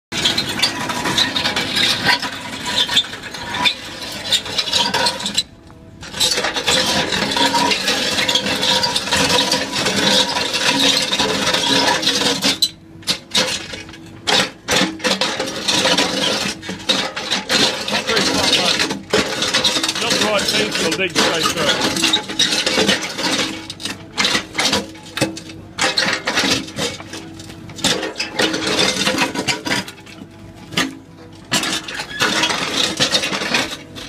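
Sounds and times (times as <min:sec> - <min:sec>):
auger grinding through concrete: 0:00.2 - 0:34.0
concrete chips rattling: 0:13.4 - 0:30.0, 0:31.5 - 0:34.0.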